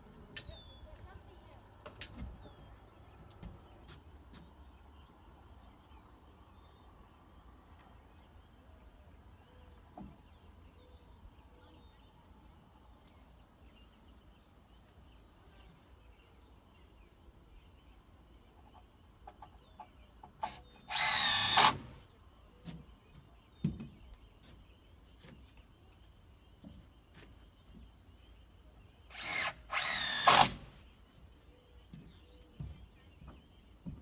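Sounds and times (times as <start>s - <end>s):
power drill whining: 20.4s - 22.0s, 29.1s - 30.8s.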